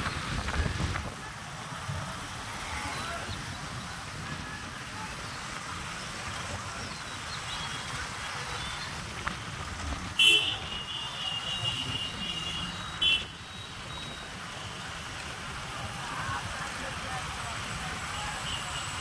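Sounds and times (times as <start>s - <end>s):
motorcycles running: 0.0s - 19.0s
horn sounding: 10.2s - 13.4s.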